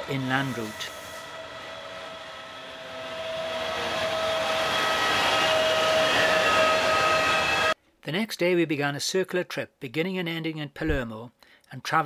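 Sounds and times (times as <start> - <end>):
electric locomotive whine: 0.0 - 7.8.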